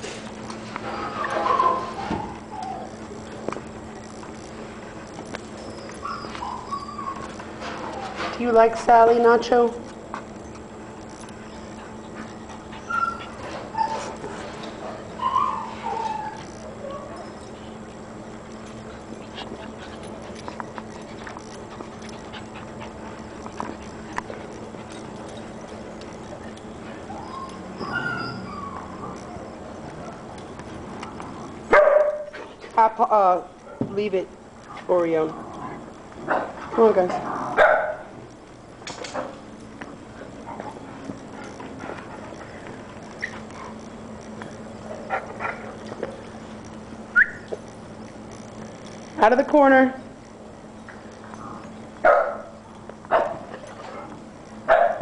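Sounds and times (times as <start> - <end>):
puppy paws clicking and scuffling: 0.0 - 55.0
steady low hum: 0.0 - 55.0
puppy yipping: 5.6 - 7.4, 12.8 - 14.2, 15.2 - 17.4, 27.1 - 29.5.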